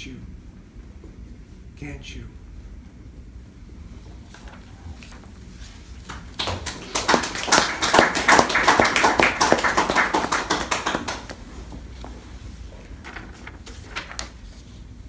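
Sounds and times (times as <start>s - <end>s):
small audience clapping: 6.0s - 12.0s.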